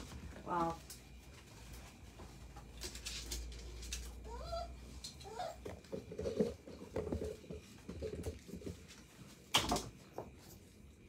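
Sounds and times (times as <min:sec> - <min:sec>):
puppies squeaking and whimpering: 0:04.1 - 0:05.6.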